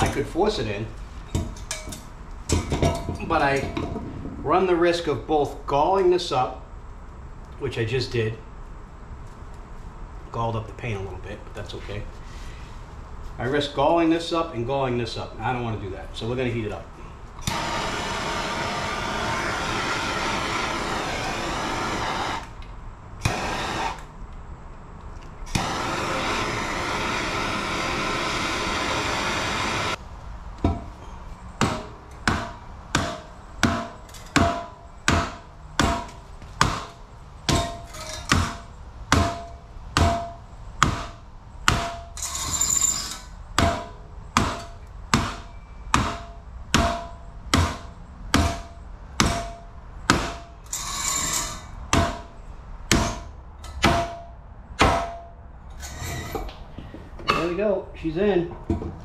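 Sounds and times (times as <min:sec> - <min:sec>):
torch hissing: 0:17.4 - 0:22.6, 0:23.2 - 0:24.1, 0:25.5 - 0:30.0
hammer blows with metallic ring: 0:30.6 - 0:55.4.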